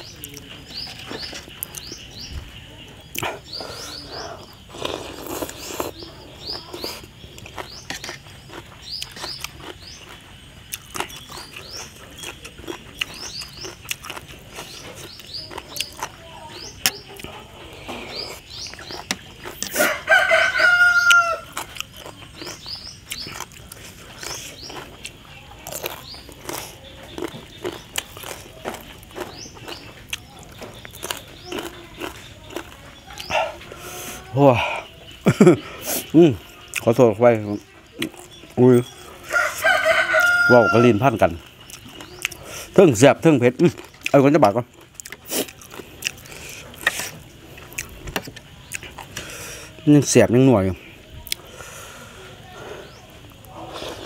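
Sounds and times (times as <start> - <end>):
rooster crowing: 19.7 - 21.6, 39.2 - 41.2.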